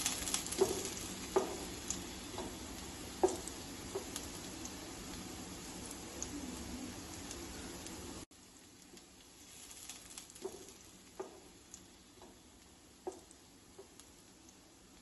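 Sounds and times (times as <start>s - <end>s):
oil popping: 0.0s - 4.9s, 8.8s - 12.4s
oil sizzling in a pan: 0.0s - 15.0s
wooden spatula knocking on pan: 0.3s - 2.6s, 3.2s - 4.2s, 10.4s - 11.5s, 13.0s - 14.0s.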